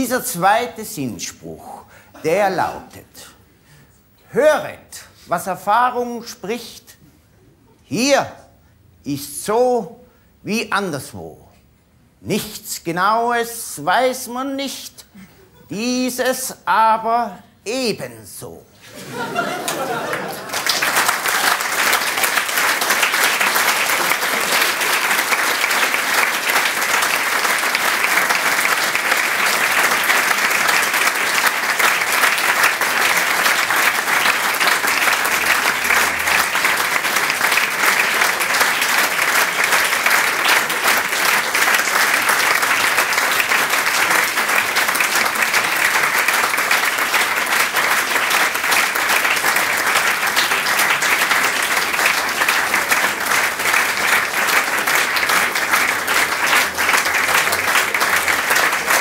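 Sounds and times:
audience applauding: 19.0 - 59.0.

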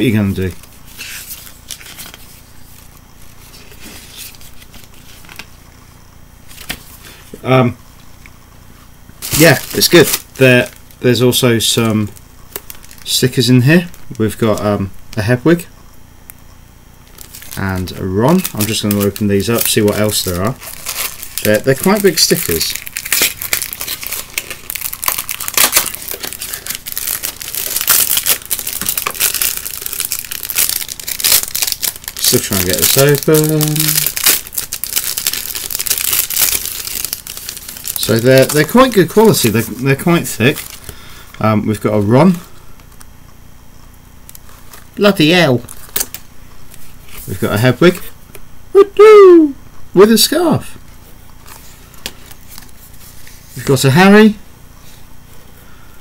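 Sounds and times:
plastic wrapping crinkling: 0.4 - 5.6, 9.2 - 14.6, 17.0 - 42.1, 44.3 - 48.0, 51.4 - 53.9
paper pages rustling: 0.5 - 5.6, 51.4 - 53.6.

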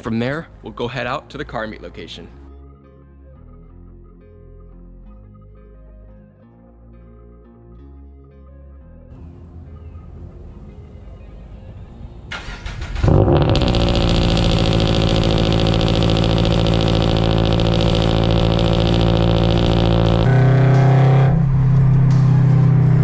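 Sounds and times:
starter motor cranking: 12.4 - 21.4
car engine idling: 12.4 - 23.0.

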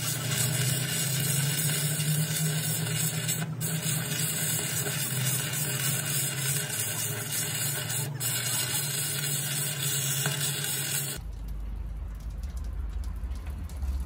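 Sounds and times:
welding arc crackling and hissing: 0.0 - 11.2.

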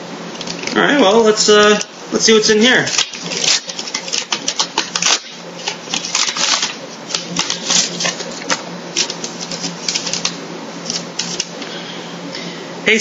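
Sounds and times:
paper crackling and rustling: 2.8 - 11.5.

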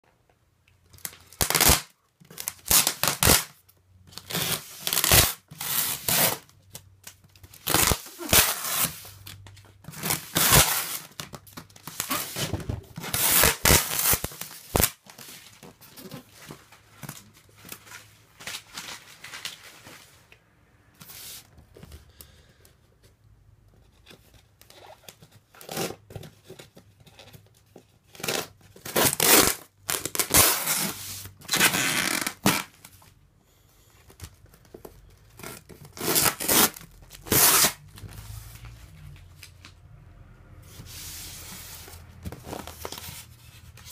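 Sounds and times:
packing tape ripping: 1.0 - 3.6, 4.2 - 6.5, 7.1 - 15.2, 28.2 - 32.8, 35.3 - 38.0.

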